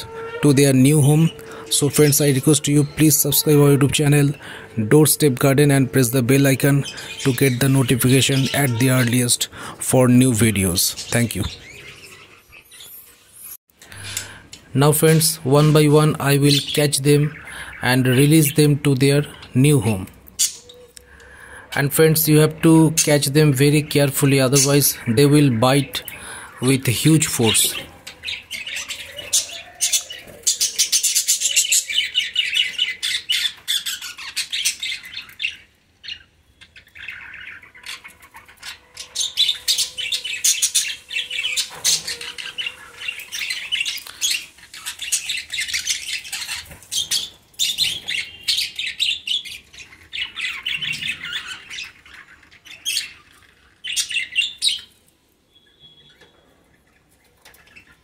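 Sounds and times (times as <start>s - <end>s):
budgerigars screeching: 0.0s - 54.9s.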